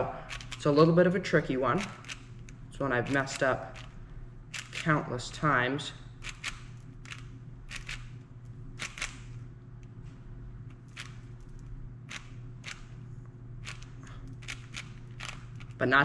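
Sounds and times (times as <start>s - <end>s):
puzzle cube clicking: 0.3s - 0.6s, 4.6s - 4.9s, 6.2s - 8.1s, 8.8s - 9.2s, 13.6s - 15.8s.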